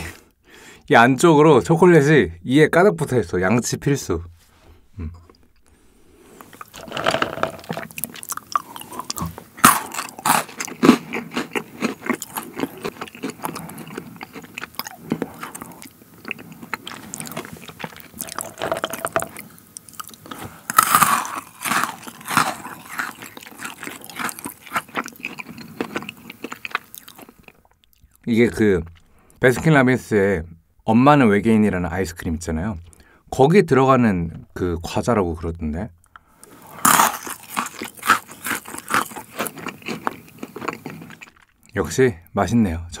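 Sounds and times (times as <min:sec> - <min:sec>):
chewing and crunching candy: 0:06.4 - 0:29.4, 0:36.0 - 0:41.9.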